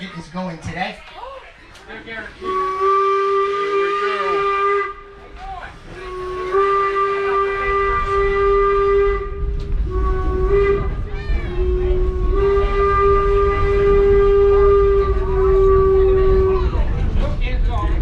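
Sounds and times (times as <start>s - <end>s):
low train rumble: 1.2s - 18.0s
steam locomotive whistle: 2.4s - 5.2s, 5.9s - 16.8s.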